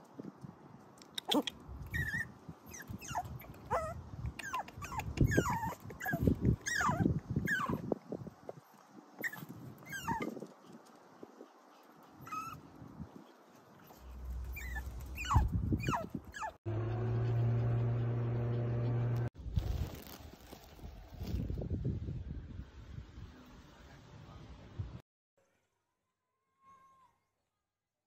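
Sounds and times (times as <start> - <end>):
puppies whining: 1.9 - 7.8, 9.2 - 10.4, 14.4 - 16.6.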